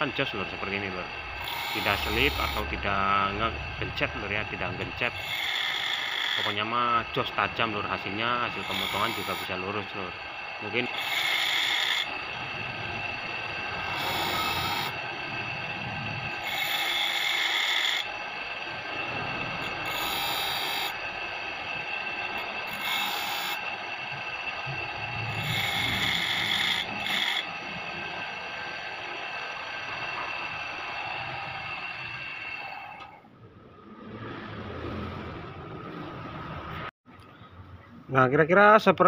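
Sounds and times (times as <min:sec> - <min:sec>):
grinding wheel whine: 0:00.0 - 0:36.9
saw blade teeth grinding: 0:01.0 - 0:02.8, 0:05.0 - 0:06.8, 0:08.3 - 0:15.1, 0:16.3 - 0:18.2, 0:19.6 - 0:21.0, 0:22.0 - 0:23.8, 0:25.3 - 0:27.6.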